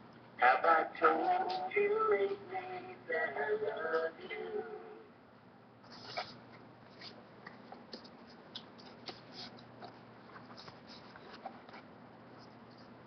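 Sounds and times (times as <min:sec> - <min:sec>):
faint low hum: 0:00.0 - 0:13.0
paper card crinkling: 0:07.9 - 0:11.8.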